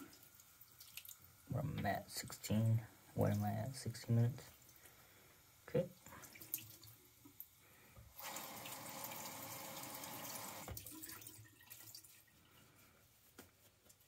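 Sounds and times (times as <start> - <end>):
tap water running: 6.0 - 12.4.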